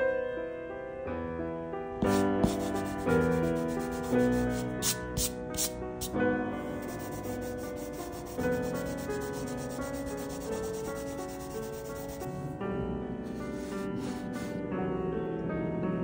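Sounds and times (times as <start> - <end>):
charcoal scratching on paper: 2.0 - 6.2, 6.8 - 12.4, 13.4 - 14.6.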